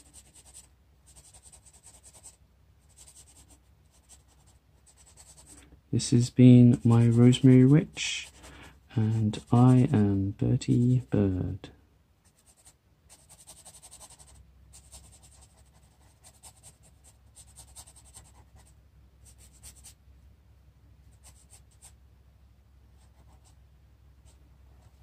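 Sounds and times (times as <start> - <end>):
marker scratching on paper: 0.0 - 5.6, 6.7 - 9.9, 12.2 - 20.0, 21.1 - 22.0, 23.0 - 23.6, 24.3 - 25.0
low steady hum: 0.0 - 25.0.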